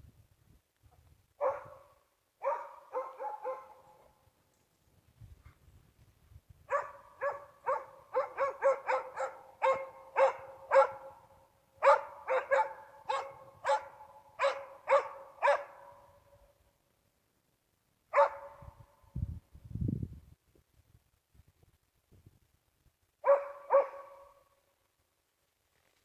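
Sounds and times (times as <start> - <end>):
dog barking sharply: 1.4 - 4.0, 6.7 - 11.2, 11.8 - 16.1, 18.1 - 18.7, 23.2 - 24.4.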